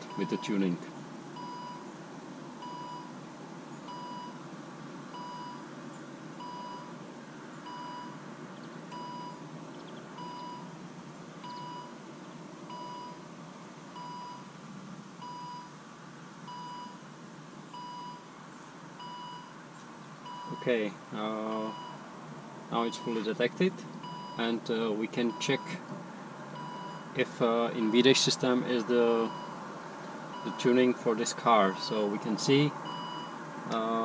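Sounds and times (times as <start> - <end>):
car warning chime beeping: 0.0 - 0.8, 1.4 - 1.9, 2.6 - 3.2, 3.9 - 4.4, 5.1 - 5.6, 6.4 - 7.0, 7.6 - 8.3, 8.9 - 9.5, 10.1 - 10.8, 11.4 - 12.0, 12.7 - 13.2, 14.0 - 14.5, 15.2 - 15.8, 16.5 - 17.1, 17.7 - 18.3, 19.0 - 19.6, 20.2 - 25.9, 26.6 - 29.6, 30.3 - 34.0.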